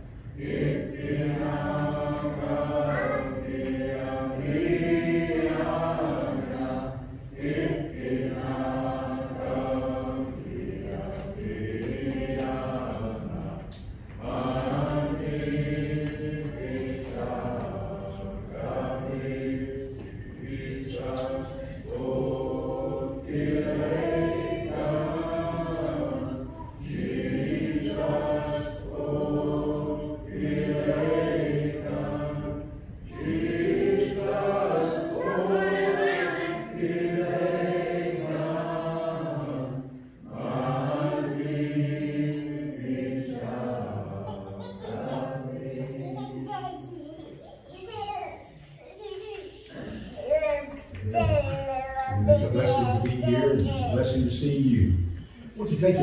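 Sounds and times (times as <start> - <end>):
group singing a hymn: 0.0 - 46.9, 49.6 - 51.4, 52.2 - 56.0.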